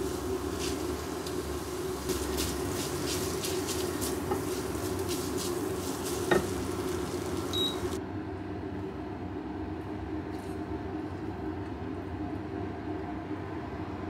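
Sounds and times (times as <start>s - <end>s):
spaghetti sizzling in a frying pan: 0.0s - 8.0s
steady low hum: 0.0s - 14.0s.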